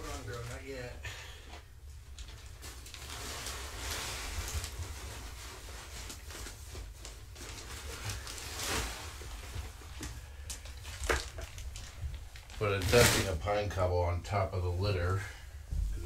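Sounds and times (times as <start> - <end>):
cat litter pouring: 2.1 - 13.6
paper bag rustling: 2.1 - 13.7.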